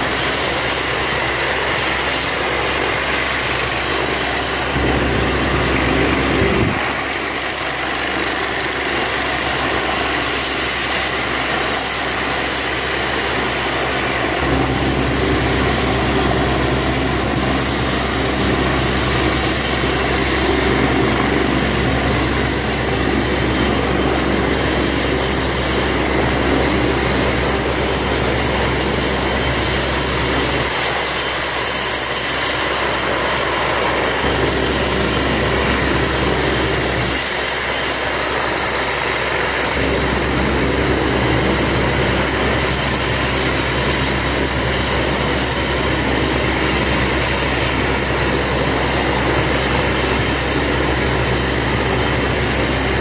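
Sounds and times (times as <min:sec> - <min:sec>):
helicopter turbine whine: 0:00.0 - 0:53.0.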